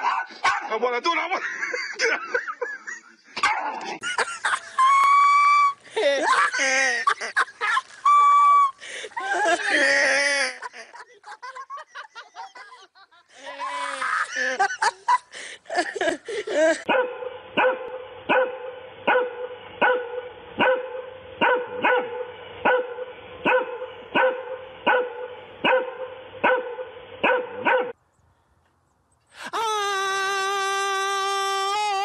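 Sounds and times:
dog barking: 0.0 - 0.7, 16.9 - 28.0.

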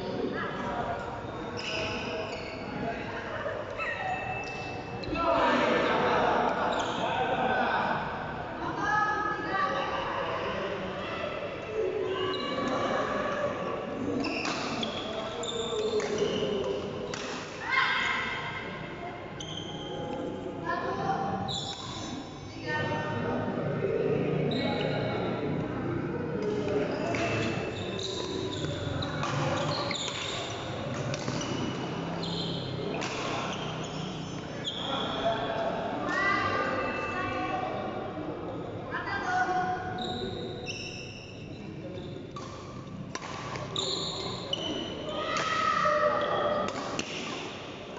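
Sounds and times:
voices in background: 0.0 - 47.9
shoes squeaking on court: 1.2 - 2.8, 14.2 - 17.2, 19.4 - 20.2, 26.4 - 35.2, 40.0 - 46.7
rackets striking shuttlecock: 16.0 - 17.6, 26.4 - 31.8, 32.9 - 33.6, 42.3 - 44.8, 46.6 - 47.6.

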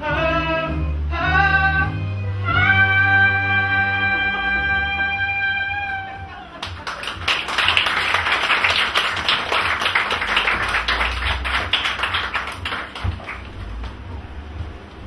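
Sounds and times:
small audience clapping: 5.8 - 14.1.

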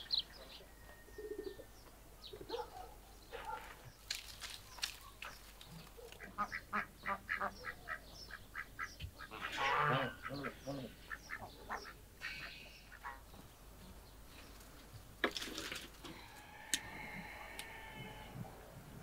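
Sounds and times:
brushwood rustling: 3.3 - 6.4, 13.1 - 16.4
chickens clucking: 4.8 - 15.0
drawn-out poultry call: 6.2 - 13.4, 16.0 - 18.8.

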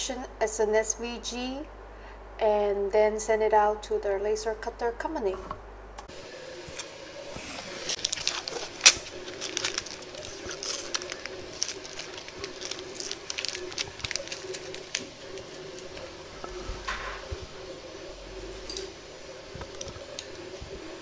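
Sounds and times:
paper crackling and tearing: 6.7 - 16.2.

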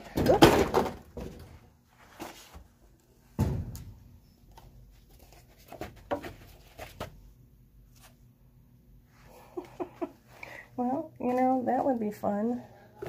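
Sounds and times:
thump: 3.4 - 4.0.

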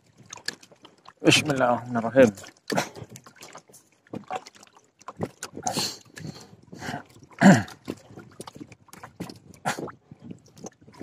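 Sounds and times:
lake water slapping and sloshing: 0.0 - 11.0.

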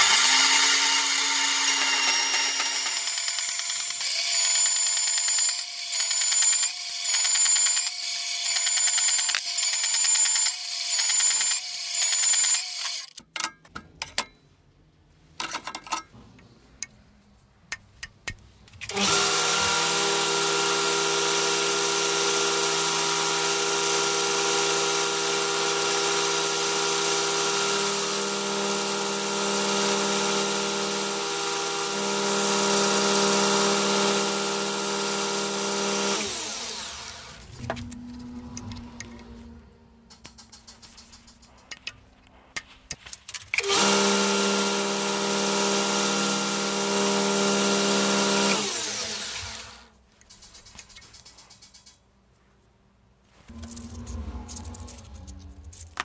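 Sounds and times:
electric power tool whining: 0.0 - 13.2, 18.9 - 39.1, 43.6 - 49.9.

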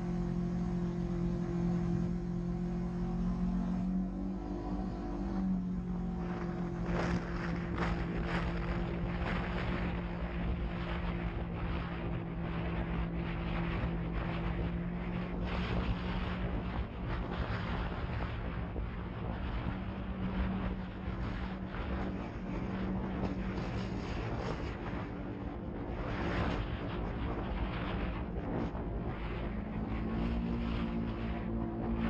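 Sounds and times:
vehicle engine cruising: 0.0 - 25.1
wind buffeting microphone: 0.0 - 32.0.

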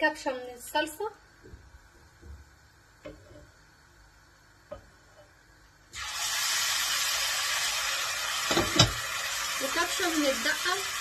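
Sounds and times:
sauce sizzling in a frying pan: 5.9 - 11.0.

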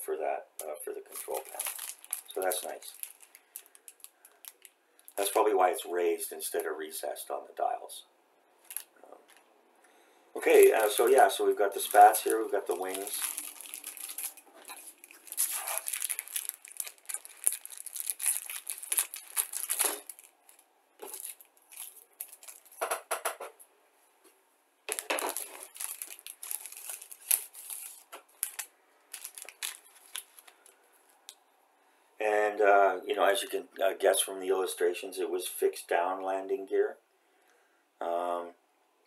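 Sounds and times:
plastic and paper crinkling: 0.6 - 5.5, 8.6 - 9.5, 10.4 - 23.0, 24.9 - 31.3.

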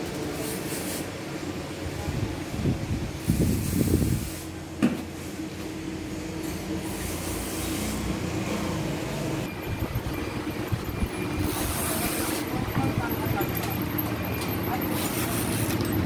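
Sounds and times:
low mechanical rumble: 8.0 - 14.6.

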